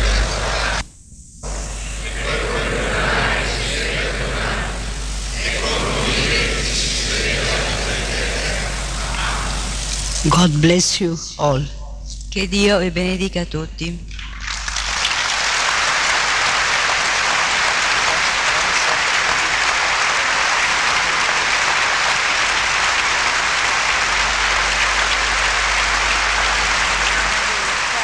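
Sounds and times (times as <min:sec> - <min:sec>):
large audience applauding: 0:02.0 - 0:10.0, 0:14.2 - 0:28.0.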